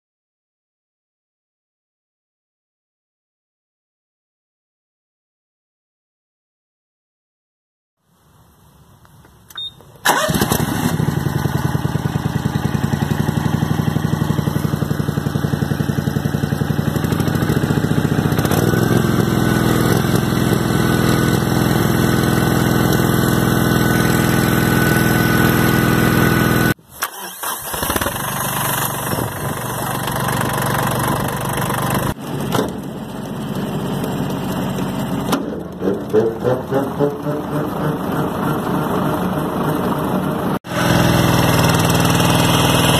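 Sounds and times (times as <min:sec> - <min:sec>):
garden tractor engine: 0:09.1 - 0:42.9
lawn mower engine running: 0:09.5 - 0:42.9.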